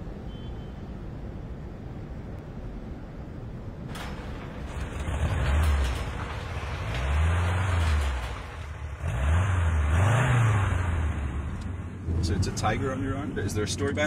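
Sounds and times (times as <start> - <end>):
car engine revving: 4.7 - 14.0.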